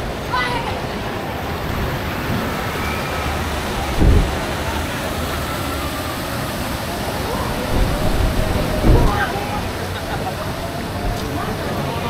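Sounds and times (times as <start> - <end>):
boat churning water: 0.0 - 12.0
faint voices: 0.0 - 12.0
low thump: 3.9 - 4.6, 7.7 - 9.4.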